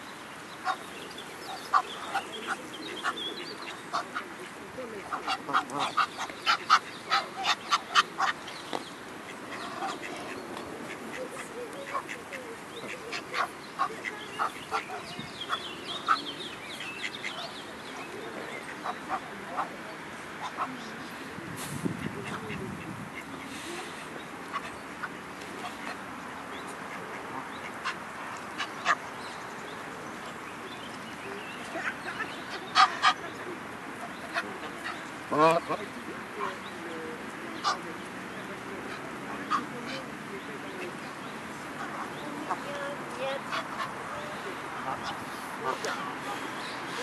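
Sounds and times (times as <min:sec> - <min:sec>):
steady background noise: 0:00.0 - 0:47.0
geese and ducks calling: 0:00.6 - 0:08.6, 0:31.6 - 0:35.8, 0:37.6 - 0:38.0, 0:38.9 - 0:41.0, 0:41.6 - 0:47.0.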